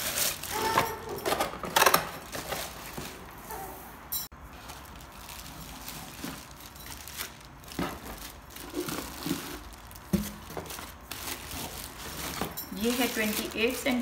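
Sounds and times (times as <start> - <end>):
plastic wrap crinkling: 0.0 - 3.6, 4.4 - 14.0.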